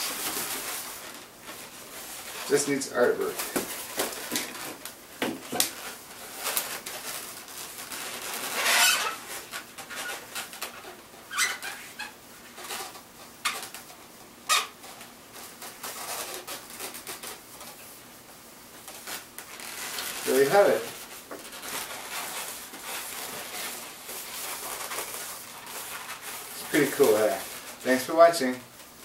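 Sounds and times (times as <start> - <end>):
balloons squeaking and rubbing: 0.0 - 18.2, 18.8 - 29.0
marker pen squeaking on balloon: 8.4 - 12.2, 14.4 - 14.8.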